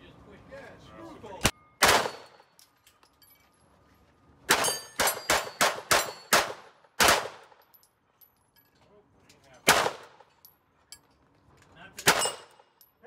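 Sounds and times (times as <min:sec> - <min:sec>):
pistol shots: 0:01.8 - 0:02.4, 0:04.5 - 0:07.6, 0:09.7 - 0:10.2, 0:12.0 - 0:12.6.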